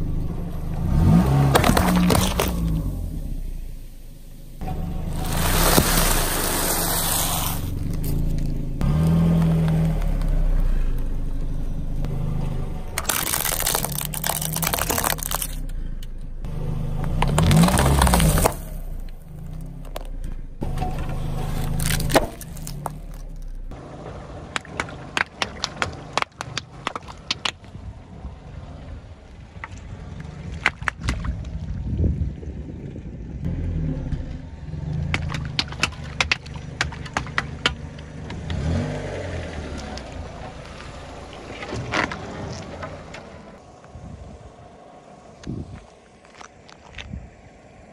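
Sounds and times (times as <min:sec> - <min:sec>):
low engine hum: 0:00.0 - 0:47.9
sharp crackles and pops: 0:13.0 - 0:15.6
tyre crunching snacks and packaging: 0:13.0 - 0:15.7, 0:17.3 - 0:20.1, 0:21.4 - 0:23.6.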